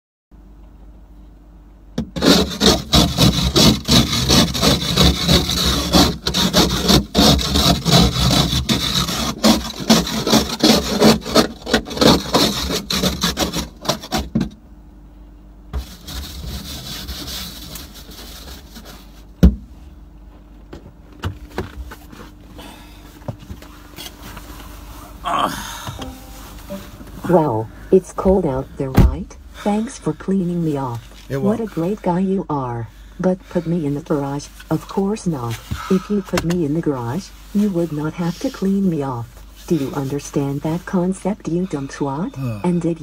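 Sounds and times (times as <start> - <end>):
snow brush scraping on car: 2.2 - 14.2, 15.8 - 19.3, 26.0 - 27.7, 36.7 - 42.2.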